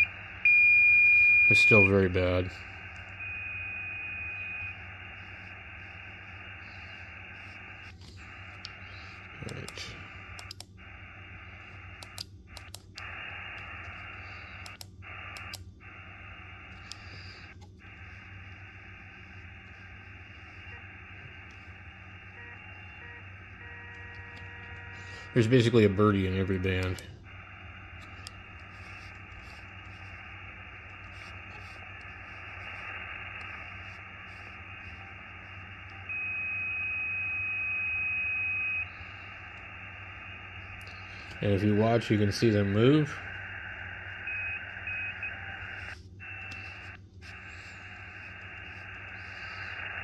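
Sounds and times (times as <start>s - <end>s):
radio receiver hiss: 0.0s - 50.0s
radio click: 1.5s - 50.0s
faint clicks: 14.6s - 15.7s.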